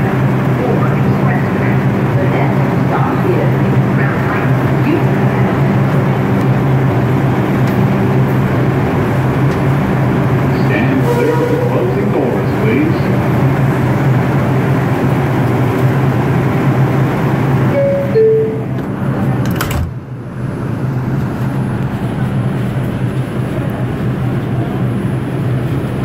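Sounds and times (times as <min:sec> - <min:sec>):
subway car equipment hum: 0:00.0 - 0:26.0
two-note falling door chime: 0:17.8 - 0:18.6
doors sliding shut with knock: 0:19.4 - 0:20.0.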